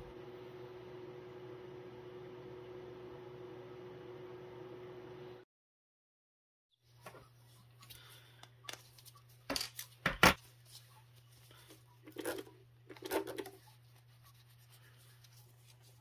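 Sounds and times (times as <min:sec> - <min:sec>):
cloth rubbing on lens: 0:10.4 - 0:16.0.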